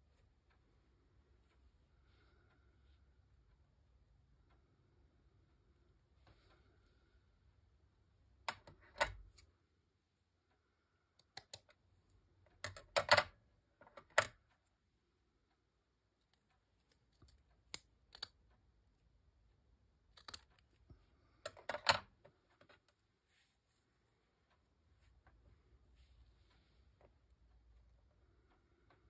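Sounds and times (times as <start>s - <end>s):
small craft pieces clicking: 16.3s - 18.5s, 20.0s - 20.8s.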